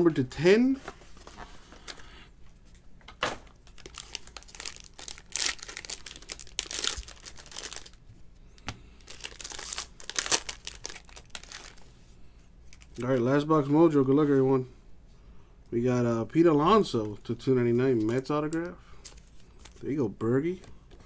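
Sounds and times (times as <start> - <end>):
foil wrapper crinkling and tearing: 3.6 - 8.0, 9.0 - 11.9.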